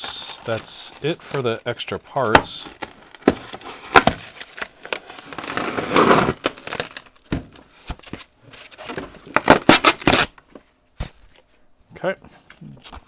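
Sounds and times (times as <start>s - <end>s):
packing material crinkling: 0.0s - 7.4s, 8.0s - 10.4s.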